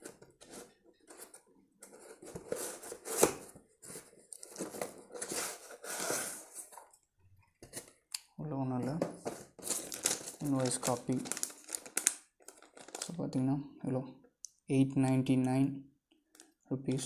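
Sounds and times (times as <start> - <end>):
paper rustling: 0.0 - 6.9, 9.2 - 13.1.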